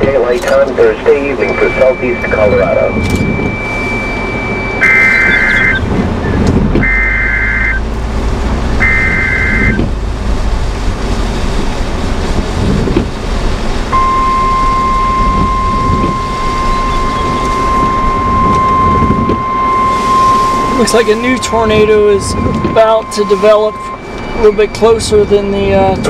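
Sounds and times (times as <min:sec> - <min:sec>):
steady warning alarm tone: 0:00.0 - 0:05.9, 0:06.8 - 0:07.9, 0:08.8 - 0:09.8, 0:13.9 - 0:26.0
rain on vehicle: 0:00.0 - 0:26.0
wind on vehicle: 0:00.0 - 0:26.0
warbling two-tone data chirp: 0:01.2 - 0:05.9, 0:14.0 - 0:26.0.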